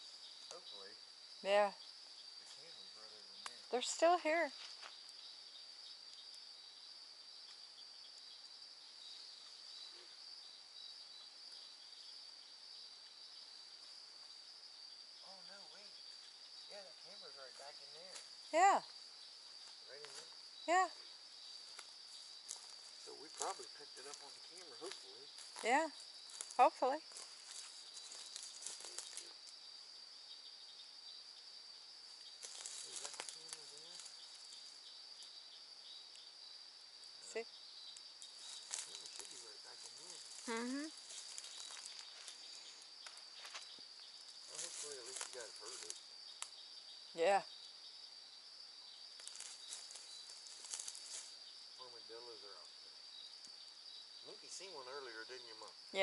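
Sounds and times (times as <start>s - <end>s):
night insects trilling: 0.0s - 56.0s
rustling of brush: 21.2s - 29.6s, 32.0s - 35.2s, 38.1s - 46.2s, 49.1s - 51.7s.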